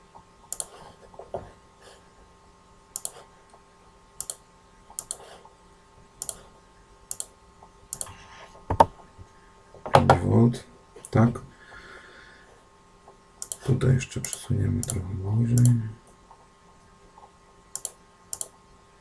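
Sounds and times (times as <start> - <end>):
computer mouse button clicking: 0.5 - 0.8, 3.0 - 3.2, 5.0 - 5.2, 13.4 - 13.6, 17.8 - 18.5.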